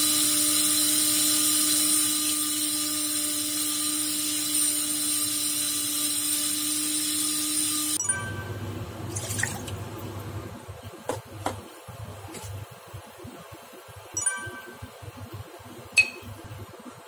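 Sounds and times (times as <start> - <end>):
electric spice grinder whining: 0.0 - 8.0.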